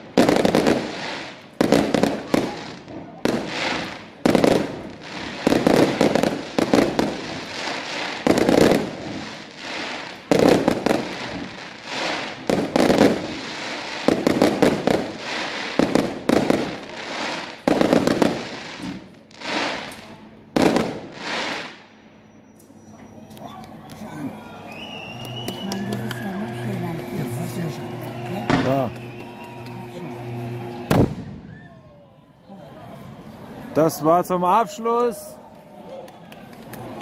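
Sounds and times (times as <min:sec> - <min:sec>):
fireworks bangs: 0:00.0 - 0:22.0, 0:24.8 - 0:32.0
small fireworks pops: 0:00.2 - 0:21.8, 0:25.1 - 0:26.4, 0:28.0 - 0:29.8, 0:35.9 - 0:37.0.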